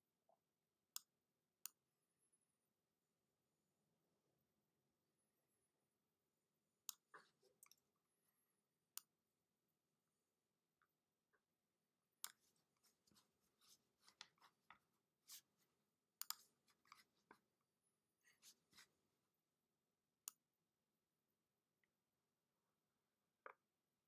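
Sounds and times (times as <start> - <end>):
computer mouse clicks: 16.2 - 17.1.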